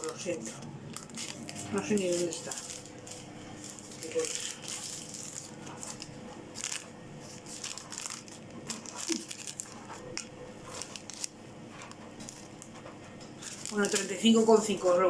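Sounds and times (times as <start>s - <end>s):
paper receipt crinkling: 0.0s - 15.0s.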